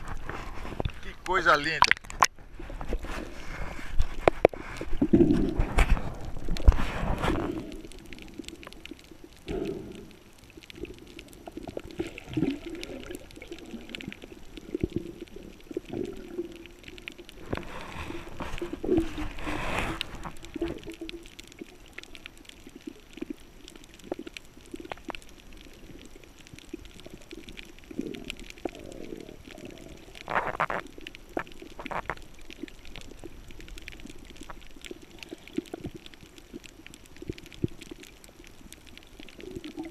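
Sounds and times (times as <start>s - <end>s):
scattered underwater clicks: 0.0s - 3.1s, 3.8s - 39.9s
low underwater gurgling: 0.0s - 39.9s
diver exhaling bubbles: 4.6s - 8.6s, 9.4s - 16.8s.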